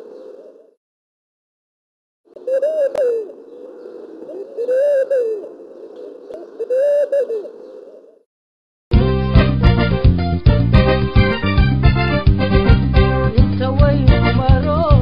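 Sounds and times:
bird calling: 0.0 - 0.8, 2.3 - 8.2.

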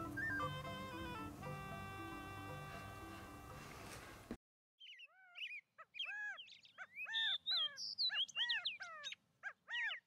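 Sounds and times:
birds chirping: 0.0 - 2.8, 4.8 - 10.0.

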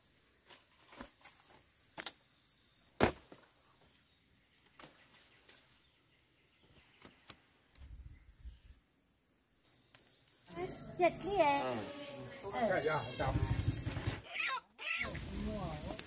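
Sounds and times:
high insect trill: 0.0 - 6.5, 8.0 - 16.0.

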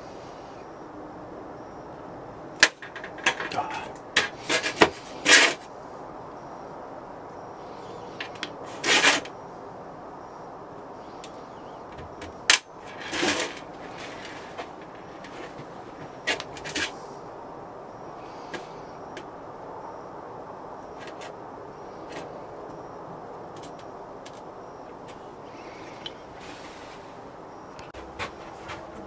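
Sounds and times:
scraping in sand: 12.9 - 17.1, 26.3 - 27.2.

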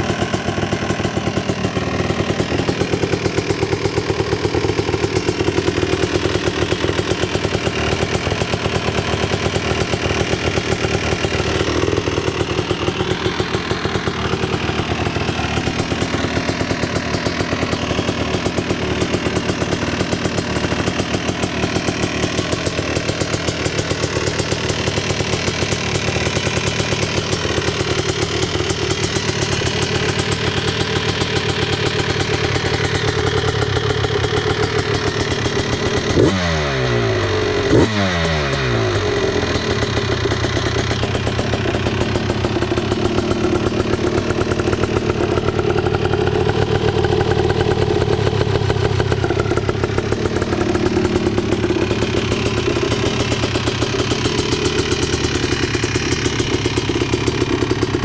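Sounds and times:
two-stroke engine idling: 0.0 - 58.0.

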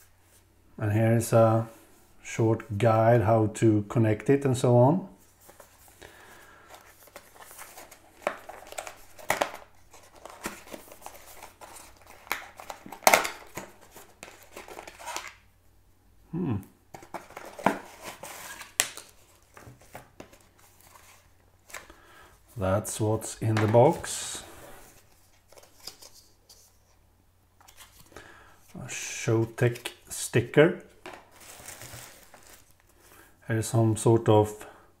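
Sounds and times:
paper and plastic rustling: 5.2 - 15.4, 16.9 - 22.0, 23.2 - 27.0, 27.6 - 28.2, 31.0 - 33.3.

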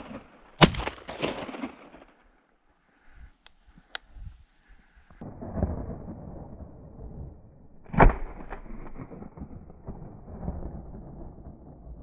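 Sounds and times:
shotgun shots: 0.0 - 2.1.

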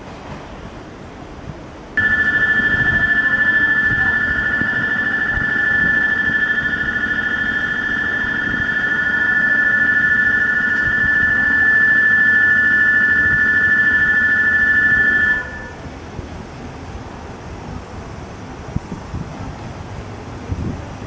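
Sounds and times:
electric departure bell ringing: 2.0 - 15.8.

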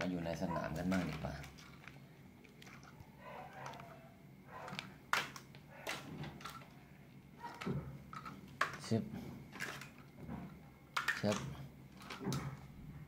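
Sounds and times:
plastic toy trucks clacking: 0.8 - 2.0, 7.5 - 10.1, 10.9 - 12.7.

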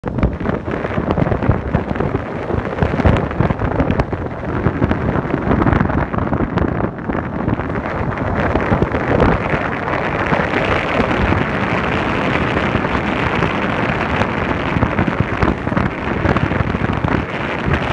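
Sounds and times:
wind buffeting microphone: 0.0 - 17.9
vehicle road noise: 6.6 - 17.9.

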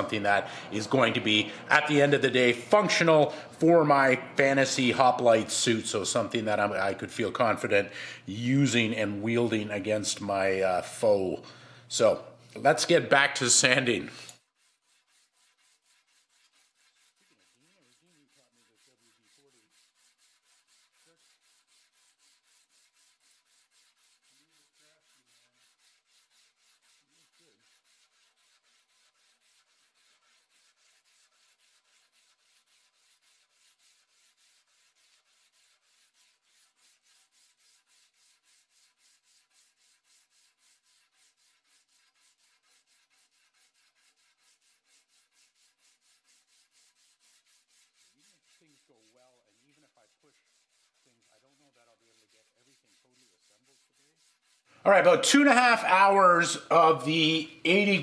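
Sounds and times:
sandpaper rubbing on steel blade: 12.0 - 58.0.

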